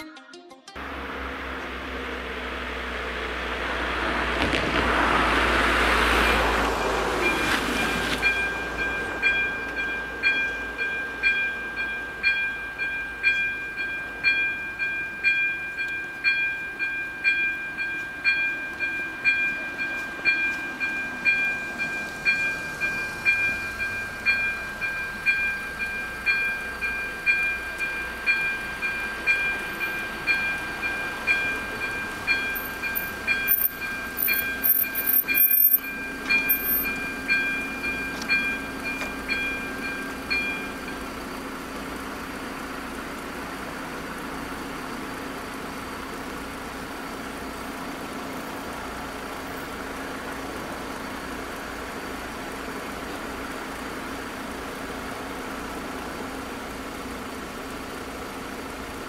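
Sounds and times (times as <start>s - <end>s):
car driving past: 0.8s - 8.9s
electronic warning bell: 6.2s - 41.4s.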